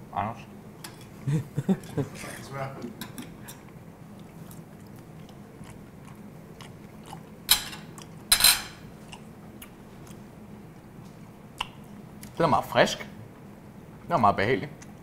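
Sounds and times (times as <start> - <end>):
faint steady hum: 0.0 - 15.0
quiet chewing: 1.8 - 8.3, 8.9 - 12.4.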